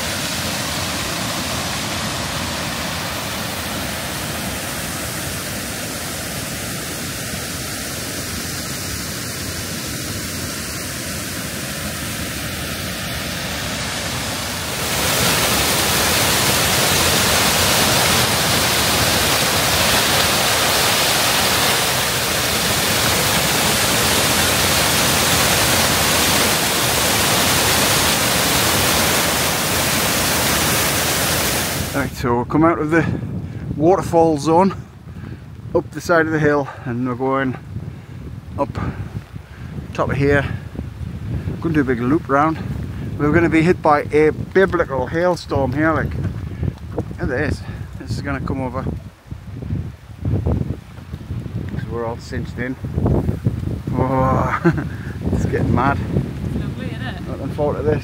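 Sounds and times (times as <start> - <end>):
waterfall roaring: 0.0 - 32.2, 51.6 - 58.0.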